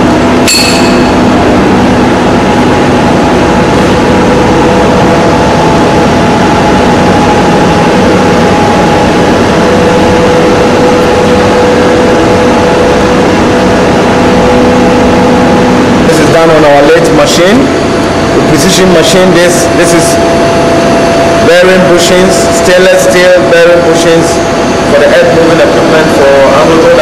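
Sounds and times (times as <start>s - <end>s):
machinery humming: 0.0s - 27.0s
short metallic clink: 0.5s - 1.3s.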